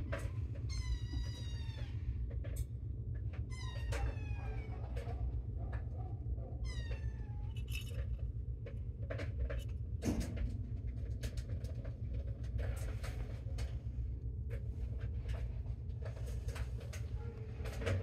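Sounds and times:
steady low hum: 0.0s - 18.0s
rustles and clicks: 6.9s - 18.0s.

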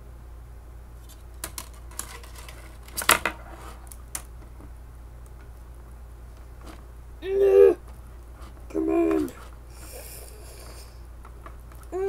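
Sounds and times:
low steady hum: 0.0s - 12.0s
plastic parts clicking and knocking: 1.1s - 4.7s.

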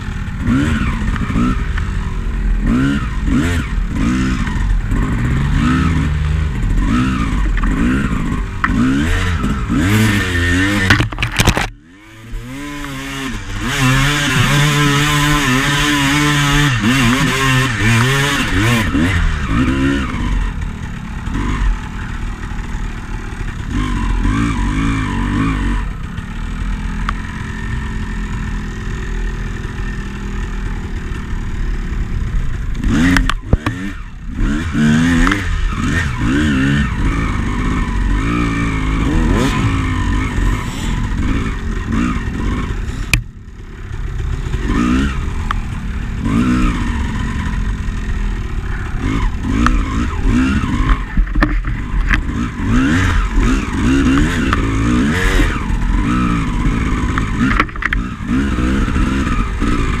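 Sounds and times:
dirt bike engine revving: 0.0s - 60.0s
bike clattering over rough ground: 10.7s - 11.8s.

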